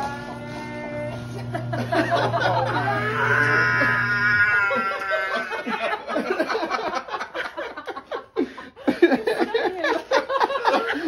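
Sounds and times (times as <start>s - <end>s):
steady low hum: 0.0s - 7.8s
people laughing: 0.0s - 11.0s
child squealing with delight: 2.8s - 5.6s.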